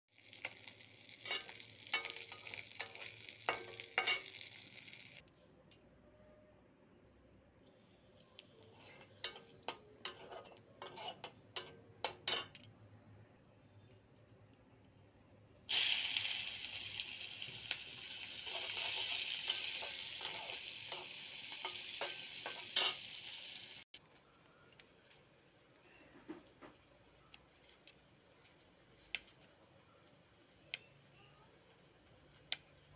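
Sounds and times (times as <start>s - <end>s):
onions sizzling in oil: 0.1s - 5.2s, 8.4s - 12.4s, 15.7s - 24.0s, 26.4s - 32.9s
hot oil popping: 0.1s - 5.3s, 8.4s - 12.6s, 15.7s - 24.0s
metal spatula scraping pan: 8.6s - 12.6s, 18.4s - 23.2s.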